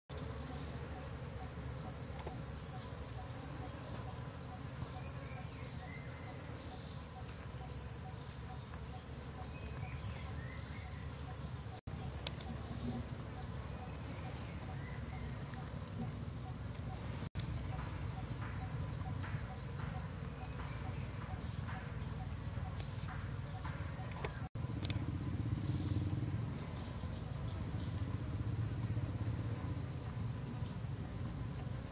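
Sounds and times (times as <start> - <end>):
insects droning: 0.1 - 31.9
bird chirps: 8.0 - 11.3.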